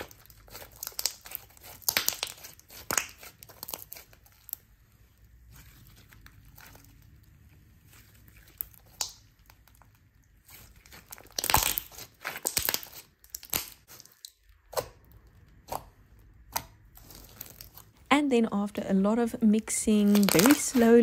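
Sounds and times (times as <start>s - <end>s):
slime popping: 0.0s - 4.6s, 8.4s - 17.9s, 20.1s - 20.9s
slime crackling and squelching: 0.0s - 21.0s.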